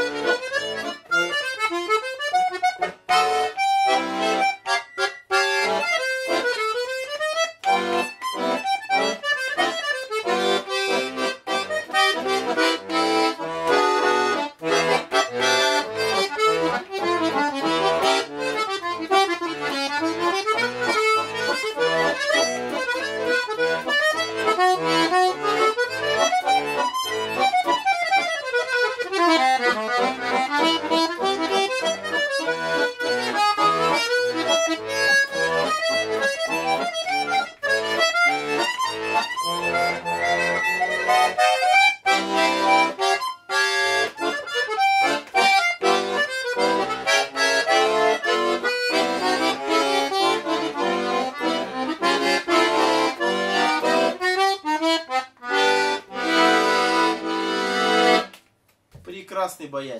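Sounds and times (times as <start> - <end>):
button accordion playing lively tune: 0.0 - 58.4.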